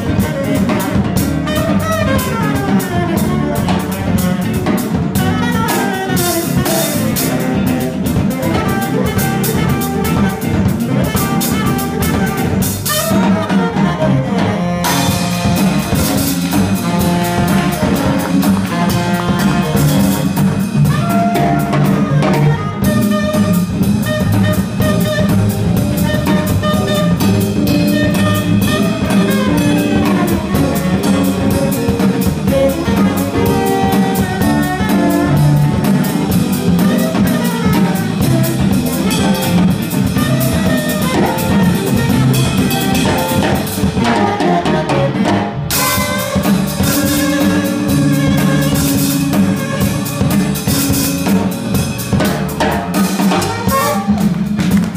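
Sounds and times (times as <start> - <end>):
jazz-funk band playing: 0.0 - 54.9.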